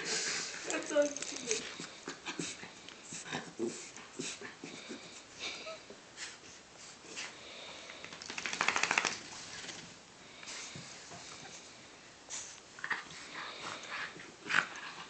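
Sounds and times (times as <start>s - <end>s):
dogs scuffling on carpet: 0.0s - 4.8s, 8.0s - 15.0s.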